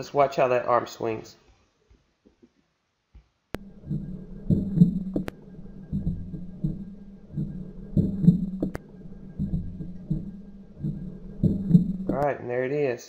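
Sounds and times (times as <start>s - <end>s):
sharp clicks: 3.6s - 12.3s
underwater swimming thumps: 3.6s - 12.3s.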